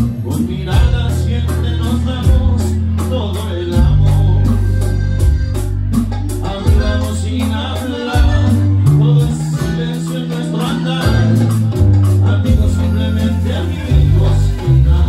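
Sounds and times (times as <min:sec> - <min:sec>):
live band with singer: 0:00.0 - 0:15.0.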